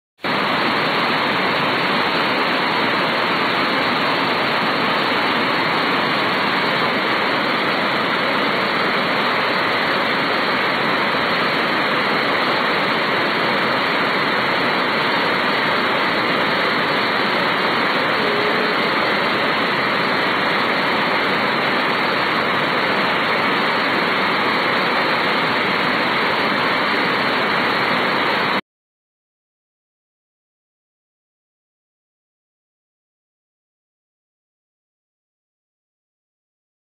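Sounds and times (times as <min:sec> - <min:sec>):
waterfall rushing: 0:00.2 - 0:28.6.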